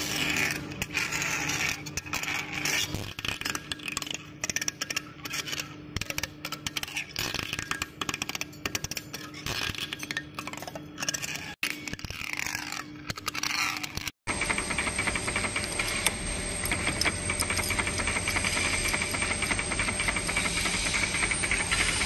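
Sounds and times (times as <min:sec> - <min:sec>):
faint machine hum: 0:00.0 - 0:22.0
lathe tool scraping metal: 0:13.4 - 0:22.0.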